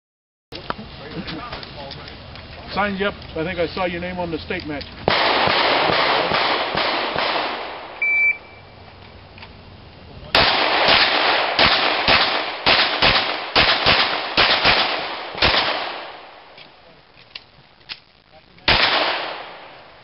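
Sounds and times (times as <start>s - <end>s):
rapid handgun shots: 5.0s - 8.0s, 10.4s - 16.3s, 18.7s - 19.8s
electronic shot timer beep: 8.0s - 8.6s.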